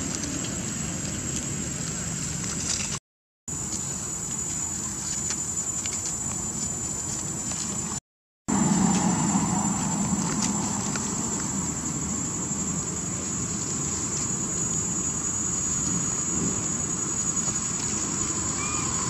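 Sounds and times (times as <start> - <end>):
low rumble and hiss: 3.5 - 19.0
thin high-pitched whine: 3.7 - 19.0.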